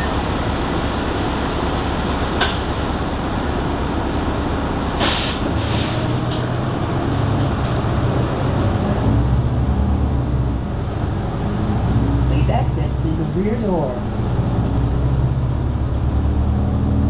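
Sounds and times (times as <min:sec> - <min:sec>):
diesel bus engine: 0:00.0 - 0:17.0
air hissing: 0:05.0 - 0:06.2.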